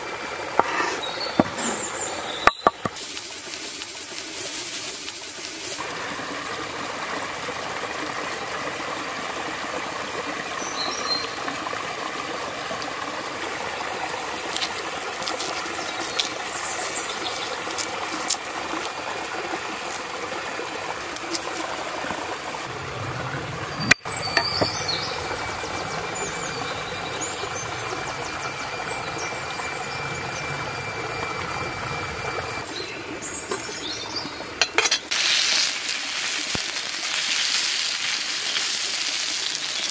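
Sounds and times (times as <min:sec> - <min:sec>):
high-pitched insect drone: 0:00.0 - 0:06.9, 0:11.1 - 0:19.2, 0:20.9 - 0:32.9
hands peeling garlic: 0:14.5 - 0:18.9.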